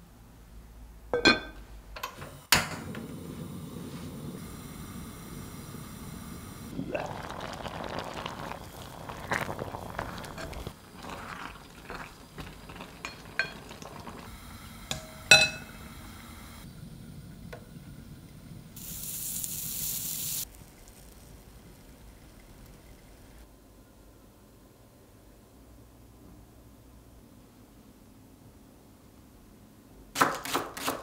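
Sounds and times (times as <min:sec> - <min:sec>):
rice water bubbling: 0:06.6 - 0:14.3
spoon scraping and clinking pot: 0:09.2 - 0:14.3, 0:14.9 - 0:15.8.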